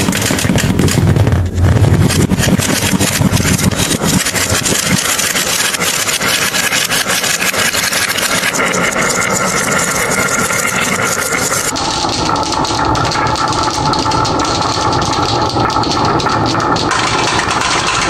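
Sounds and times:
glass marbles rolling on wood: 0.0 - 18.0
marbles clicking together: 2.0 - 18.0.

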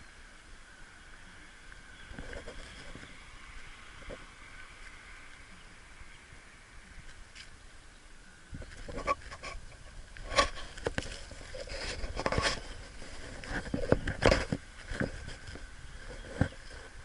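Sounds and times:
scrapes rustles and knocks: 2.1 - 3.2, 8.6 - 17.0.

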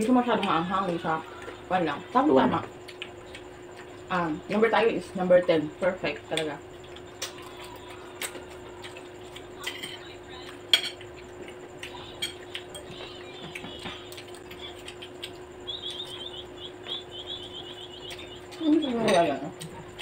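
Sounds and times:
low hum: 0.0 - 20.0
forks clinking against plates: 9.6 - 10.0, 10.7 - 11.1, 12.1 - 13.1, 18.7 - 19.7
rapid high chirping: 11.0 - 20.0.

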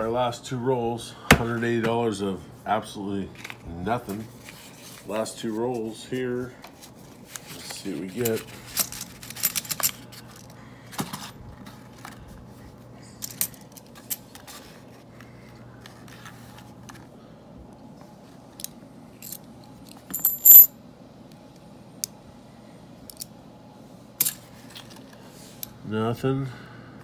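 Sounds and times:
coins clinking: 8.2 - 10.1, 20.0 - 20.7.

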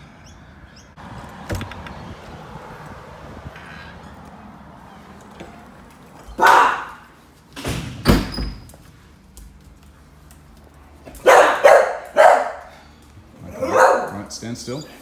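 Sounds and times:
dog barking: 6.3 - 7.1, 11.2 - 14.3.

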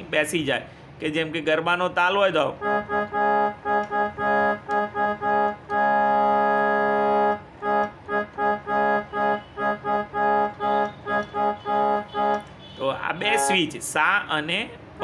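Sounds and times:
electronic keyboard organ chord: 2.6 - 12.5, 13.2 - 13.7.

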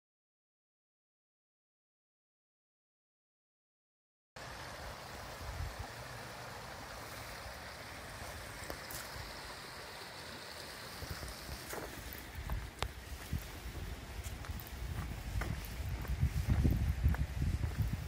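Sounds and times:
stream rushing: 4.4 - 18.0.

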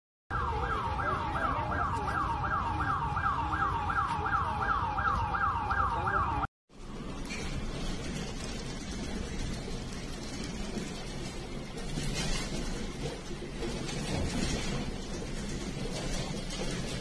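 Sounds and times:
siren yelping: 0.3 - 6.5
steady rumbling noise: 6.7 - 17.0.

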